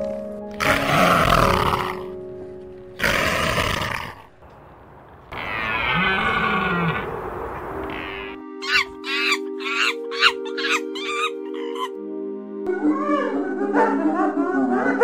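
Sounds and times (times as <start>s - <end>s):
background music: 0.0s - 4.5s, 7.5s - 15.0s
leopard rough calls: 5.3s - 7.2s
deer call: 7.8s - 11.9s.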